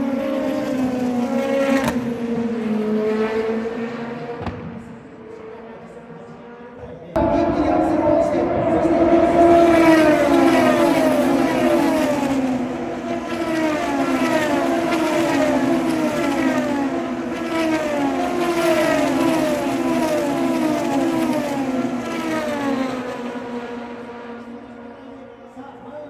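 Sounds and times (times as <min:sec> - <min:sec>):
racing car engine passing: 0:07.2 - 0:25.1.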